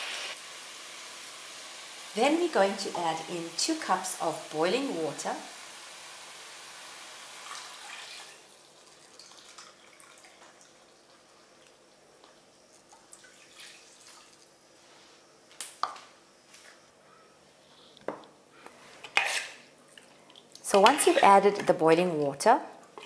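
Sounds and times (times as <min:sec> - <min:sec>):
water pouring into pot: 0:06.2 - 0:11.3, 0:12.9 - 0:14.4
water dripping: 0:08.8 - 0:14.4.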